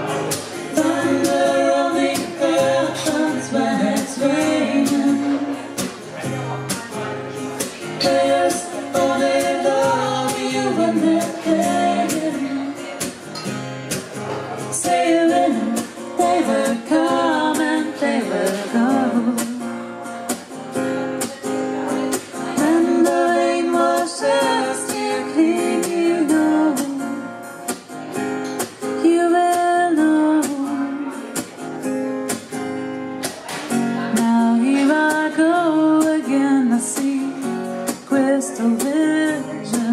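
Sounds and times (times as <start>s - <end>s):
strummed guitar: 0.0s - 39.9s
woman singing: 0.3s - 5.9s, 7.8s - 13.2s, 14.7s - 19.8s, 22.1s - 27.3s, 28.7s - 31.5s, 34.0s - 39.9s.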